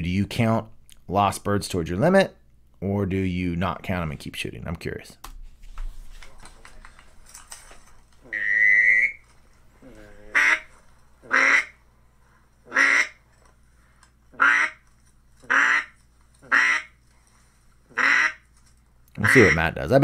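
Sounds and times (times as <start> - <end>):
duck quacks: 8.3 - 9.2, 10.0 - 11.8, 12.7 - 13.2, 14.4 - 14.8, 15.5 - 16.9, 17.9 - 18.4, 19.2 - 19.8.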